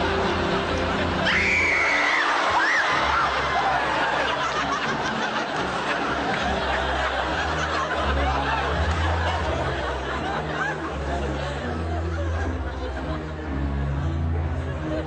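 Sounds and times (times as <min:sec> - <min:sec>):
audience laughing: 0:00.0 - 0:15.0
dramatic film music: 0:00.0 - 0:15.0.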